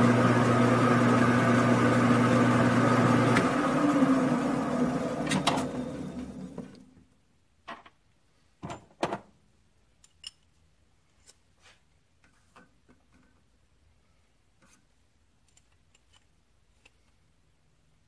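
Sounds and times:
lathe motor coasting to a stop: 0.0 - 6.8.

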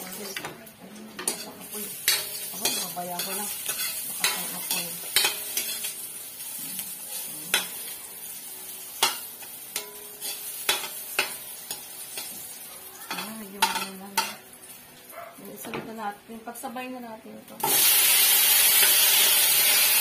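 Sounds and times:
food sizzling in oil: 0.0 - 0.5, 1.2 - 15.6, 17.6 - 20.0
metal spatula scraping wok: 1.2 - 7.8.

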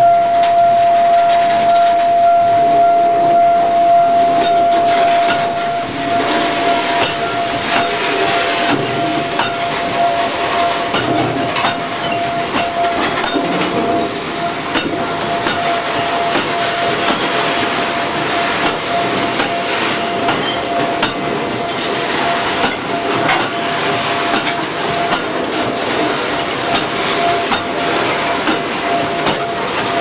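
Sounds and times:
high-pitched tone: 0.0 - 17.2
rail wheels knocking over joints: 0.0 - 30.0.

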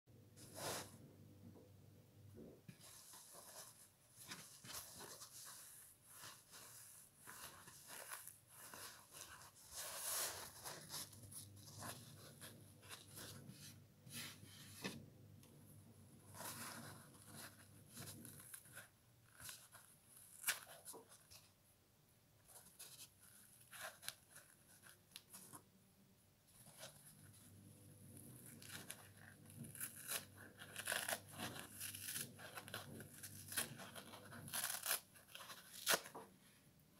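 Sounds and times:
foam tearing and crunching: 29.6 - 35.1.

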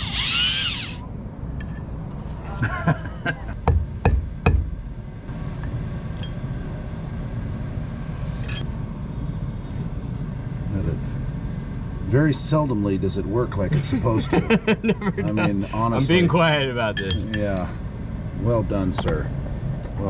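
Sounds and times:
cordless drill whining: 0.0 - 1.0.

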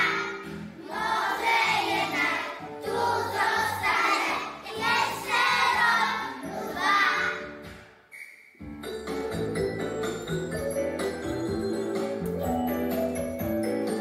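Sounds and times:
children singing in unison: 0.0 - 7.4
musical accompaniment: 0.0 - 14.0.

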